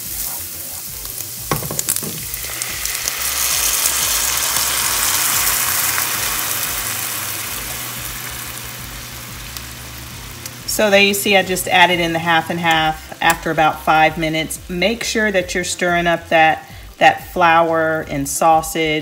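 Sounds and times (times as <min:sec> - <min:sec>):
spatula scraping skillet: 0:00.0 - 0:04.4
sizzling hiss in pan: 0:00.0 - 0:19.0
liquid poured into hot pan: 0:01.5 - 0:08.7.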